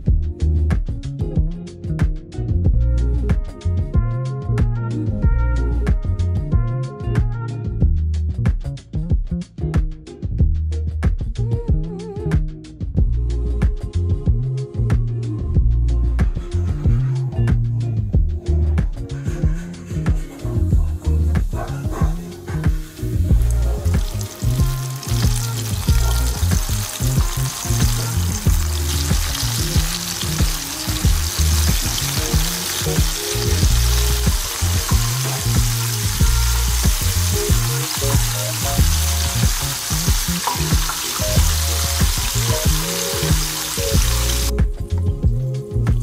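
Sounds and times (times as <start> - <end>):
background music with bass line: 0.0 - 46.0
chicken deep-frying in oil: 22.0 - 44.5.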